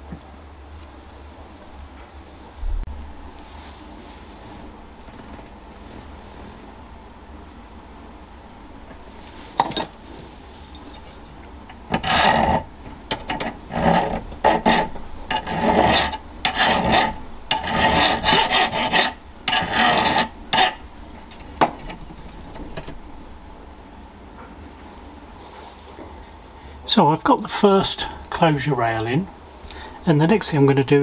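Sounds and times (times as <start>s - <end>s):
hand file scraping metal rail: 11.0s - 22.0s.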